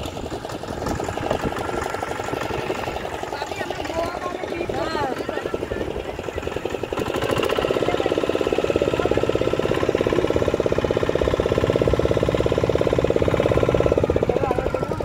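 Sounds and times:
motorboat engine running: 0:00.0 - 0:15.0.

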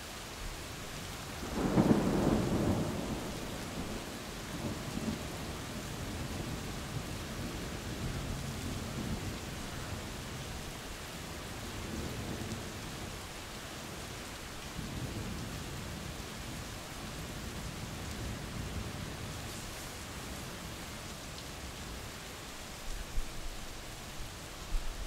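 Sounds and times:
steady rain falling: 0:00.0 - 0:25.0
low rolling thunder: 0:01.4 - 0:10.4, 0:14.7 - 0:21.0.

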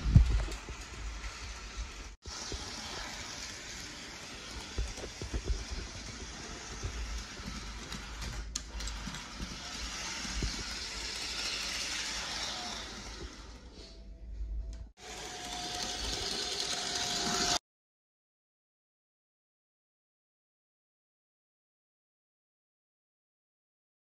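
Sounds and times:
model train motor whirring: 0:00.2 - 0:13.8, 0:15.0 - 0:17.6.

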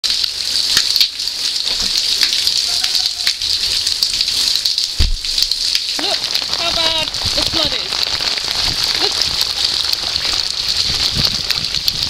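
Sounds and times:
heavy rain on pavement: 0:00.0 - 0:12.0
low thump: 0:05.0 - 0:05.3.

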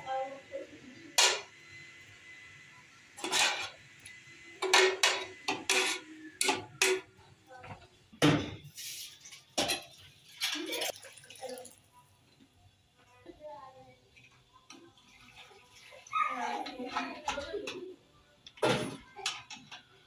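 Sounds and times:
metal utensils clinking on pots: 0:04.6 - 0:07.1, 0:08.4 - 0:11.0.

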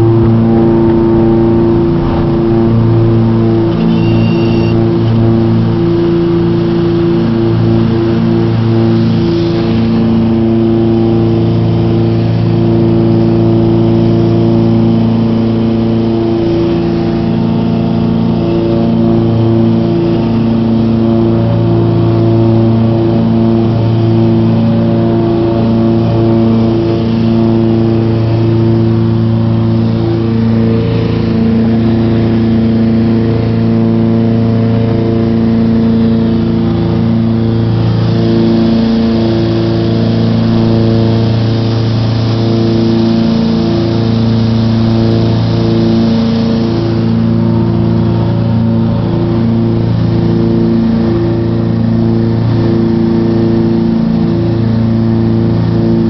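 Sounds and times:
aircraft engines droning in cabin: 0:00.0 - 0:56.0.

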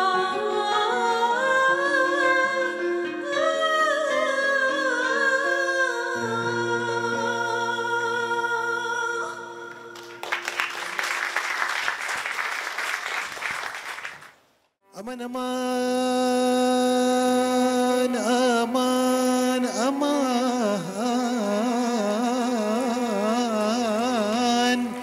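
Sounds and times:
woman singing melismatic song: 0:00.0 - 0:10.3
audience applauding: 0:10.0 - 0:14.4.

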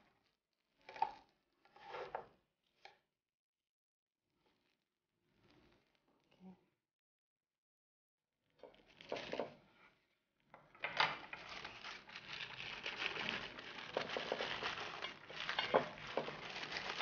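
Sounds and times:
paper crinkling: 0:11.2 - 0:17.0.

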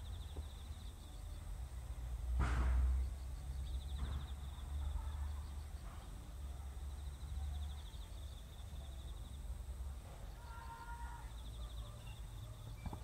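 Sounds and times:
loud bang: 0:02.4 - 0:03.0.

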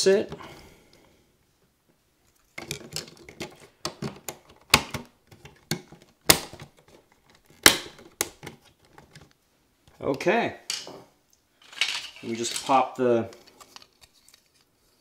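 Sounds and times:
handling noise: 0:02.4 - 0:14.6
plastic parts clicking and snapping: 0:02.5 - 0:09.4.

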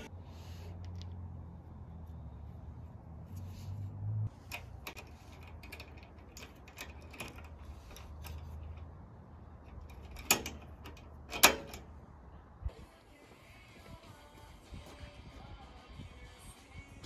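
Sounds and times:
metal latch clicking: 0:04.4 - 0:12.0.

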